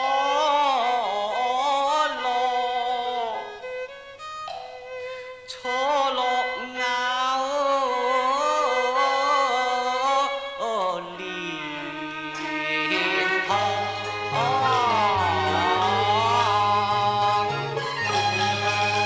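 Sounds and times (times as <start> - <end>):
man singing opera: 0.0 - 3.6, 5.5 - 19.0
instrumental accompaniment: 3.4 - 9.4, 10.0 - 19.0.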